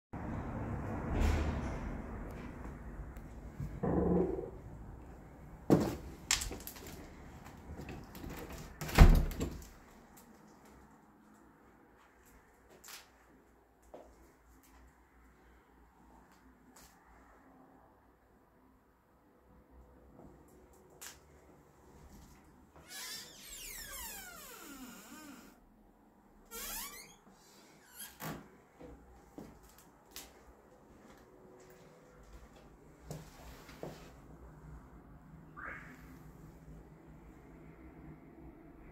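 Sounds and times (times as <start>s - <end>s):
sharp knocks on metal door: 3.8s - 4.6s
metal door creaking: 22.9s - 25.6s, 26.5s - 27.2s.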